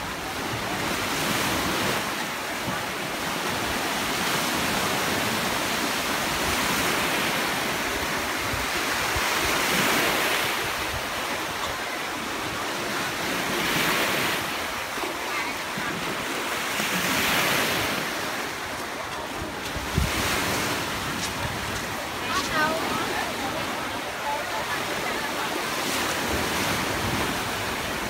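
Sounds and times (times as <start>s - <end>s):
sea waves washing ashore: 0.0s - 28.0s
wind rumbling on microphone: 19.2s - 22.8s.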